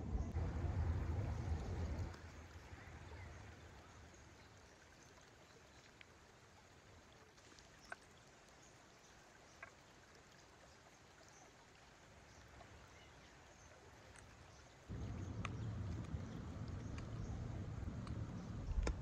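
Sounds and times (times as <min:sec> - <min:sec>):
loud low rumble: 0:00.0 - 0:02.2, 0:14.9 - 0:19.0
river rushing: 0:14.9 - 0:19.0
small clicks: 0:15.2 - 0:19.0.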